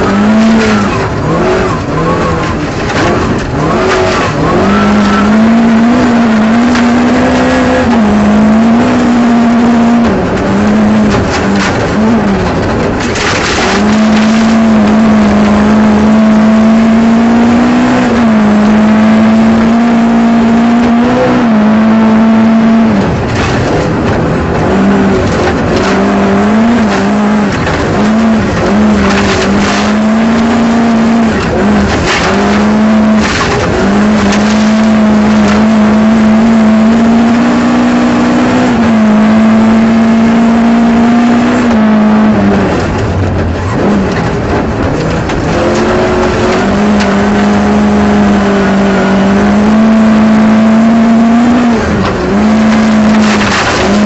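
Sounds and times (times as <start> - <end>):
rally car engine revving: 0.0 - 54.0
sharp engine cracks: 11.1 - 15.5, 52.0 - 54.0.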